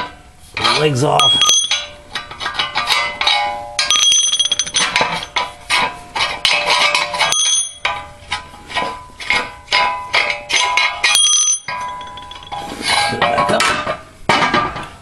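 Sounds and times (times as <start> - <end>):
metal pipes clanking: 0.0 - 15.0
metal knocks with ringing: 1.2 - 8.2, 8.8 - 12.6.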